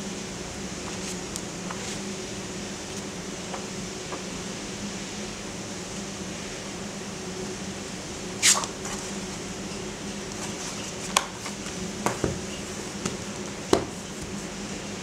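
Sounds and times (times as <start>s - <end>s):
steady low hum: 0.0s - 15.0s
book taps and knocks on table: 12.0s - 12.4s, 13.0s - 14.0s.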